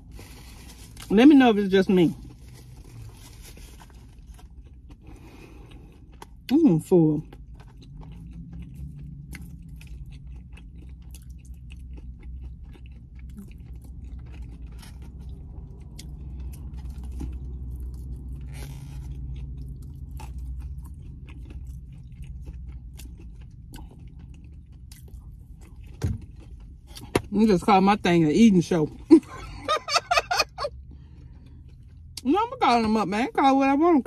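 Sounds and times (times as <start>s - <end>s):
steady low hum: 0.0s - 34.0s
chewing and biting food: 2.2s - 27.3s.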